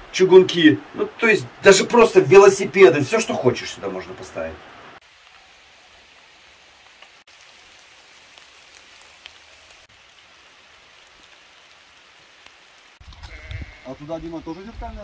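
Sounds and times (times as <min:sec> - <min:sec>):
rain falling steadily: 0:00.0 - 0:15.0
ticks of single raindrops: 0:05.0 - 0:13.7.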